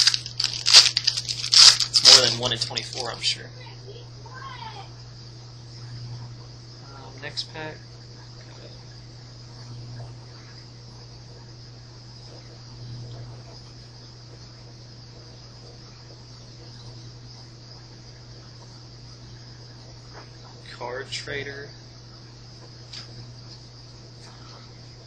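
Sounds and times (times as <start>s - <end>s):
foil pack rustling: 0.0s - 3.2s.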